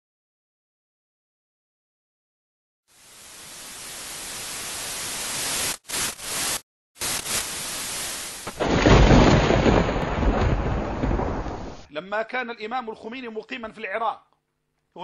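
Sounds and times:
static white noise: 2.9s - 8.6s.

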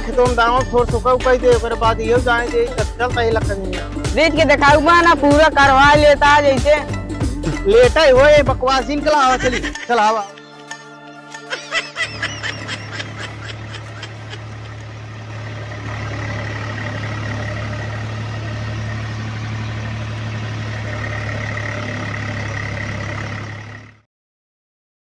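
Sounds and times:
deep engine drone: 12.1s - 24.0s.

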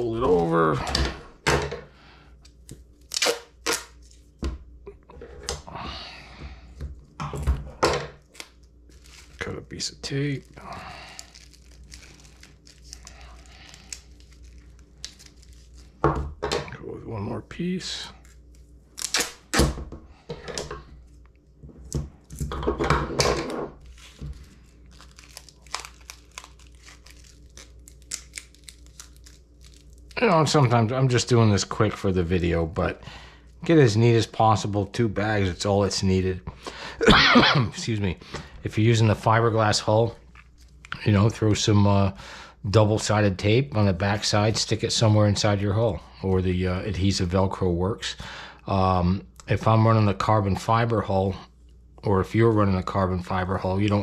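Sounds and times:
tape ripping off roll: 3.0s - 4.0s, 19.0s - 19.8s
plastic bag crinkling: 8.2s - 16.0s, 23.8s - 30.2s
tape ripped off a roll: 19.0s - 19.8s.

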